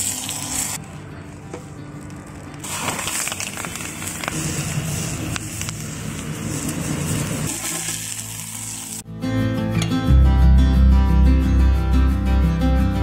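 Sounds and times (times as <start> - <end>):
food sizzling in hot oil: 0.0 - 0.8, 2.6 - 9.1.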